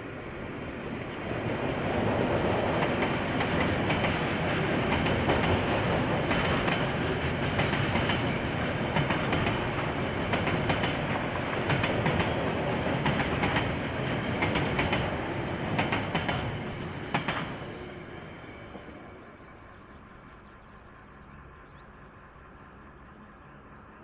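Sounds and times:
freight train rumbling past: 0.0 - 24.0
wheels clicking over rail joints: 2.7 - 17.6.

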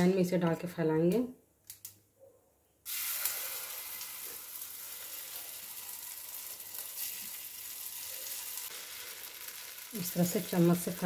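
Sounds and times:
oil sizzling in a pan: 2.8 - 11.0.

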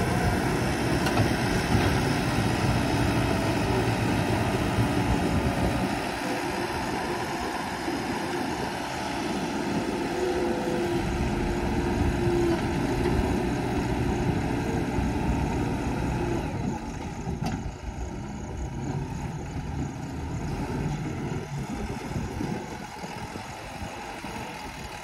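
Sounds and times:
heavy diesel engines running: 0.0 - 25.0.

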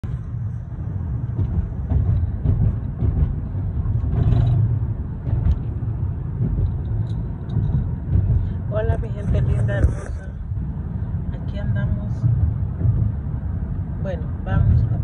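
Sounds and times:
car cabin road rumble: 0.0 - 15.0.

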